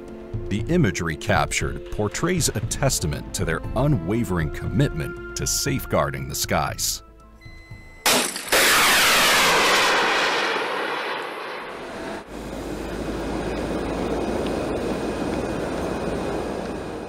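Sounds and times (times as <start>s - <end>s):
aircraft jet-like rush: 8.5s - 17.0s
steady rumbling noise: 8.8s - 17.0s.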